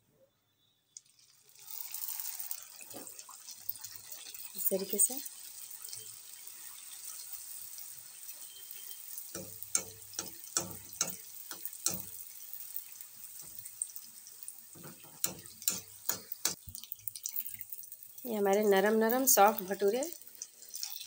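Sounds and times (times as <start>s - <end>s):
deep-frying sizzle in hot oil: 0.9s - 21.0s
sharp pops and clicks: 9.4s - 12.2s, 14.8s - 17.3s.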